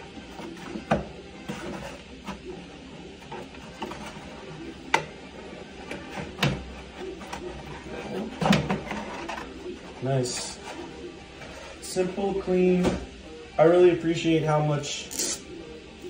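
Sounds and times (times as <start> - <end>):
cardboard scraping and rustling: 0.2 - 2.5, 5.9 - 11.9.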